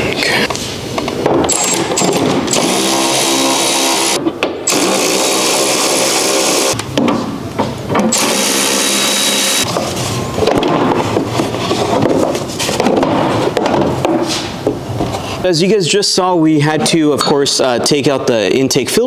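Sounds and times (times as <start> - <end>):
cordless power driver running: 2.5 - 6.8, 8.1 - 9.7.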